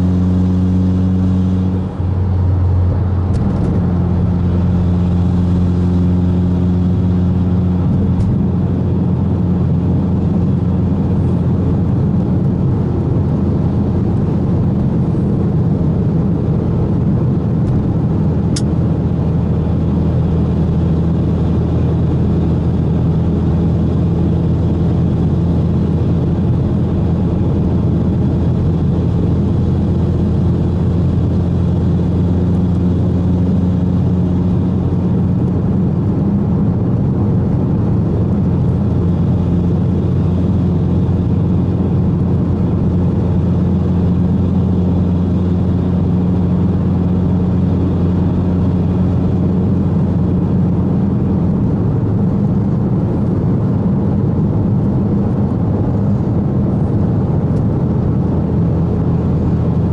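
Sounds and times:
car engine droning: 0:00.0 - 0:59.9
tyre and road noise: 0:00.0 - 0:59.9.

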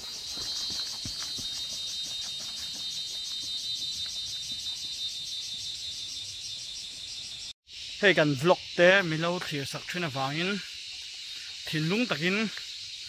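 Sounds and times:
footfalls on dirt path: 0:00.0 - 0:04.8
insects chirring: 0:00.0 - 0:13.0.

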